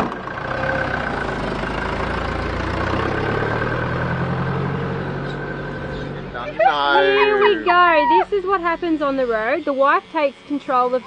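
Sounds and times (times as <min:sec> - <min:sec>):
truck engine running: 0:00.0 - 0:10.4.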